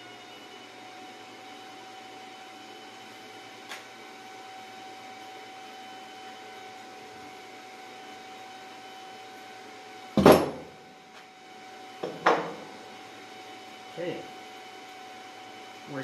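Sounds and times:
tools knocking on wooden workbench: 10.2 - 10.7, 12.0 - 12.6.

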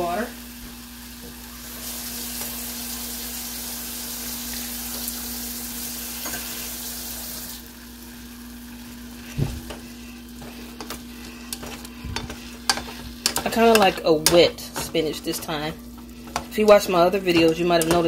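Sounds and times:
spinach sizzling in pot: 0.0 - 18.0
steady low hum: 7.6 - 18.0
spoon stirring against pot: 9.2 - 18.0.

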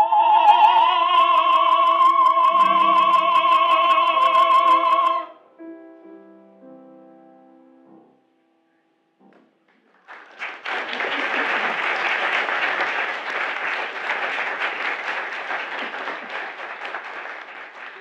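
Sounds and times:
audience applauding: 2.5 - 5.0, 9.7 - 18.0.

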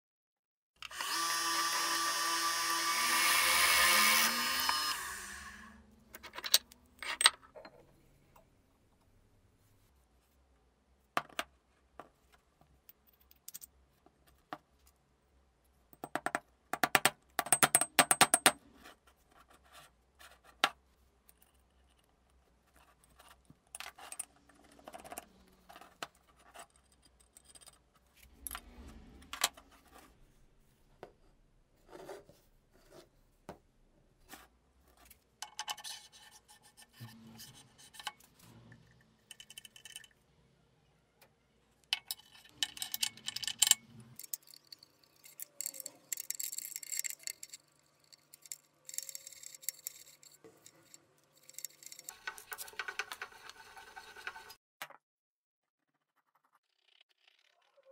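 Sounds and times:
metal parts clicking and knocking: 6.1 - 7.9, 39.2 - 40.2, 41.8 - 53.3
metal sliding and scraping: 28.0 - 30.6, 35.7 - 39.4.

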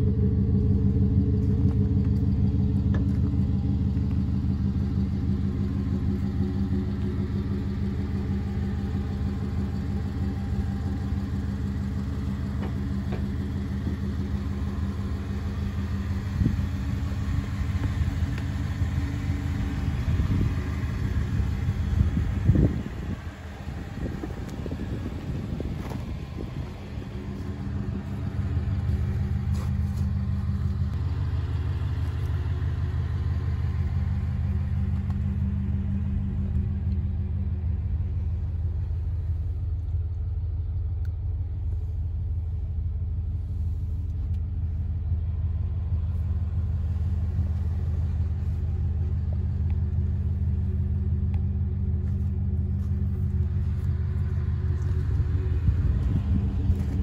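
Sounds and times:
pickup engine idling: 0.0 - 57.0.

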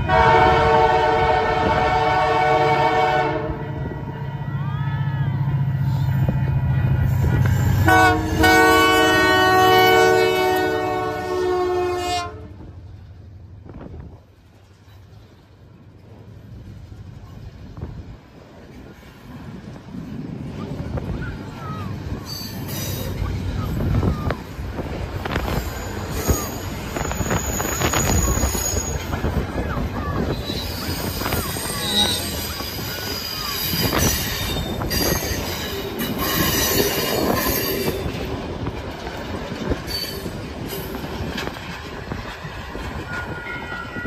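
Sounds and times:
train chord horn blasts: 0.0 - 4.5, 7.2 - 12.7
boxcars rolling past: 0.0 - 44.0
diesel locomotive engine rumbling: 0.0 - 44.0
train wheel clacks: 22.1 - 44.0
thin wheel squeals: 25.5 - 29.1, 30.3 - 38.0.

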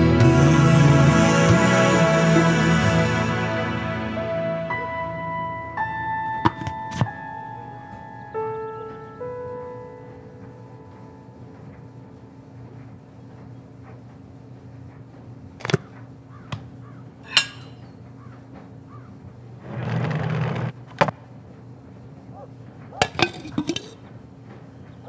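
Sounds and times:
low steady hum: 0.0 - 25.0
clay pot lid clinking: 17.3 - 17.8, 23.0 - 24.0
crockery knocking and clinking: 17.3 - 17.8, 23.0 - 24.0.

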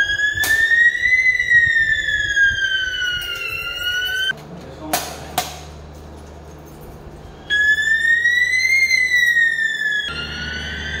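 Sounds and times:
fire alarm sweeping tone: 0.0 - 4.3, 7.5 - 11.0.

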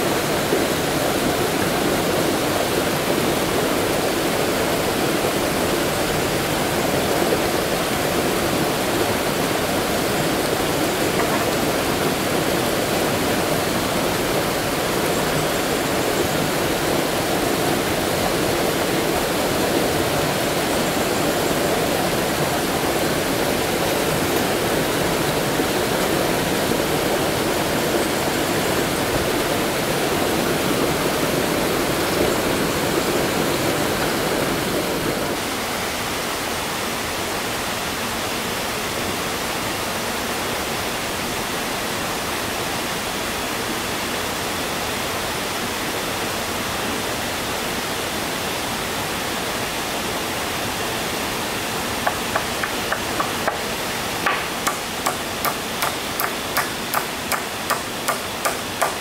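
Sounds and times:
waterfall and stream rushing: 0.0 - 59.0
hammer driving nails into wood: 52.1 - 53.6, 54.2 - 59.0.

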